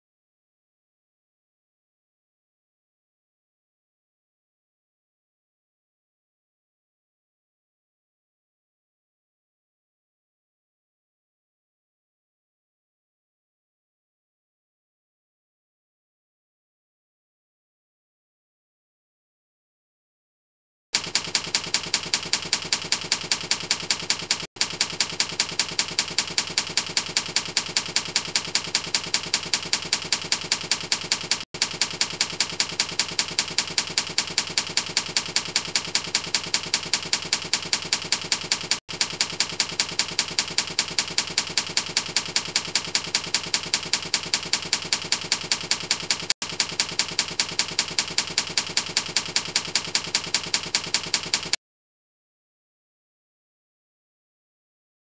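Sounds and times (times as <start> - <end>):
typewriter keystrokes: 21.0 - 51.6.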